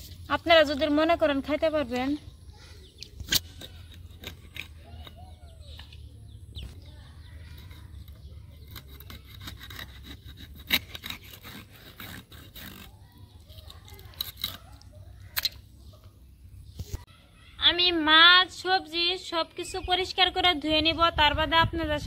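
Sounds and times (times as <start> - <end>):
blade scraping fish scales: 7.5 - 15.6.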